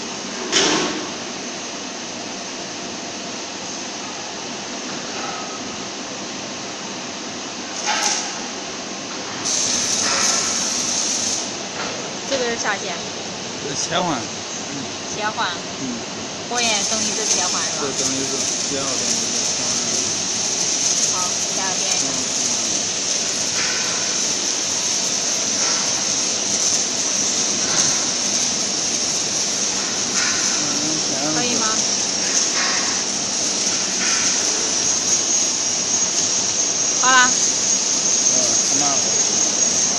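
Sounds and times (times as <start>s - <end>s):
gas hissing: 9.3s - 39.9s.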